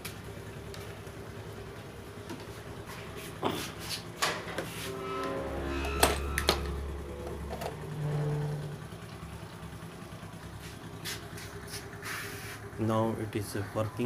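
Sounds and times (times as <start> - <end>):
small electric motor humming: 4.9 - 9.3.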